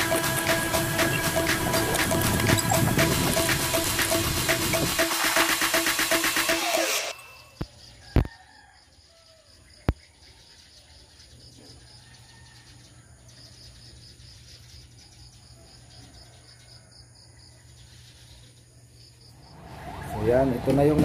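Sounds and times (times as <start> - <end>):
insect chirping: 7.1 - 19.7.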